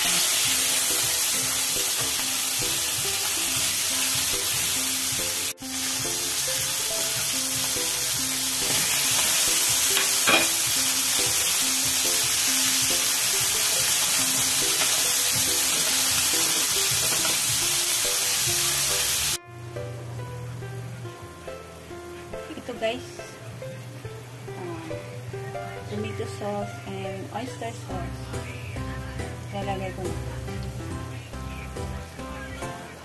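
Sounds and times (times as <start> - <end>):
food sizzling in a pan: 0.0 - 19.4
light background music: 0.0 - 33.0.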